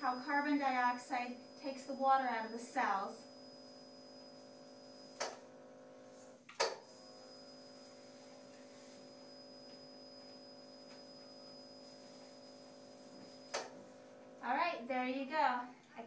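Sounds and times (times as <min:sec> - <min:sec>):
laser unit humming with whine: 0:00.0 - 0:14.5
sharp click: 0:06.5 - 0:06.8.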